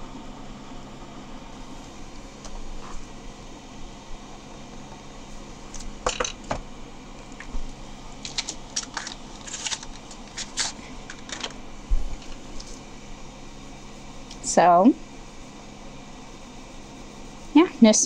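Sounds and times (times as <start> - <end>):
pen caps clicking and scratching: 8.3 - 11.6.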